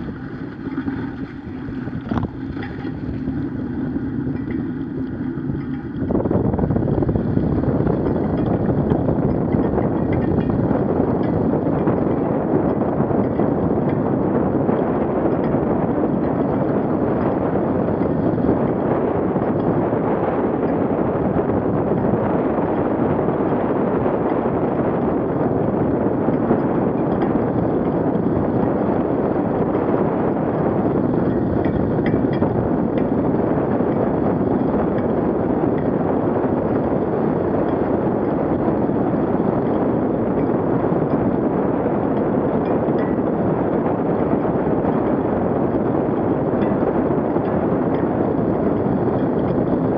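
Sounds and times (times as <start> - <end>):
wind rushing over microphone: 0.0 - 49.9.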